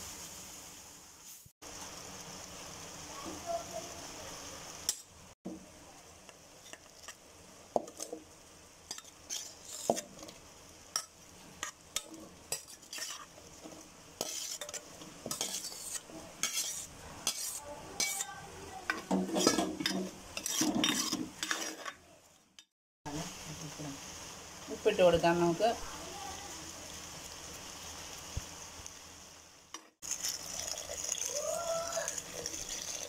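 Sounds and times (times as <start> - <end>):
light sizzle: 0.0 - 33.0
spoon clinking and scraping in pan: 8.9 - 22.7.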